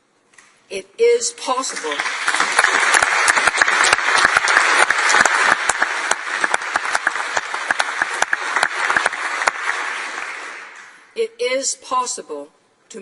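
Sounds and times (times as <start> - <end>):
crowd applauding: 1.7 - 11.0.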